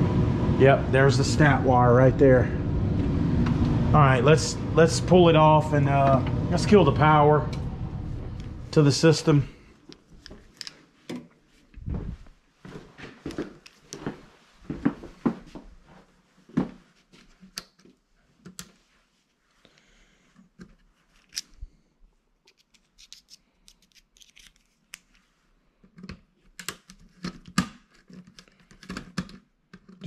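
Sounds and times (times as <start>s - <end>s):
screwdriver clicks and scrapes: 10.2s - 10.8s, 21.1s - 21.6s, 22.5s - 25.3s
footsteps on floor: 11.9s - 16.9s.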